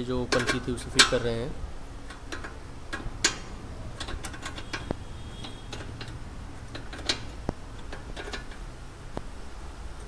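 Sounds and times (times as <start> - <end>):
hand tools clicking on metal: 0.1 - 1.3, 2.0 - 8.7.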